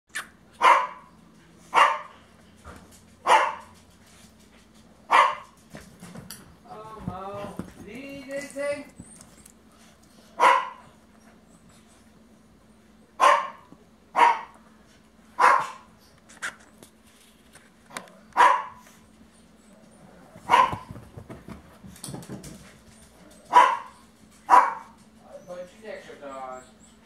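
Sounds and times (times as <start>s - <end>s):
small dog barking: 0.6s - 1.1s, 1.7s - 2.2s, 3.2s - 3.7s, 5.1s - 5.6s, 10.4s - 10.9s, 13.2s - 14.6s, 15.4s - 15.9s, 18.4s - 18.8s, 20.5s - 20.9s, 23.5s - 25.0s
faint scuffling: 2.6s - 10.5s, 20.0s - 25.2s.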